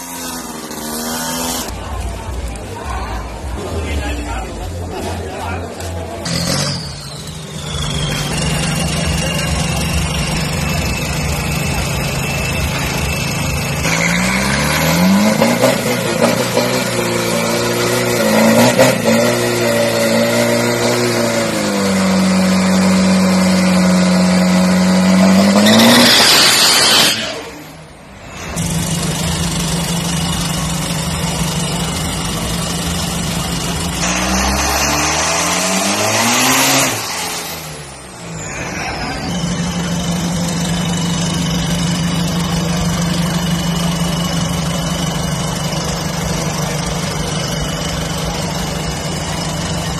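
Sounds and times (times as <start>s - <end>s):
diesel engine revving hard: 0.0s - 1.8s, 5.8s - 49.9s
falling whistle: 6.7s - 9.6s.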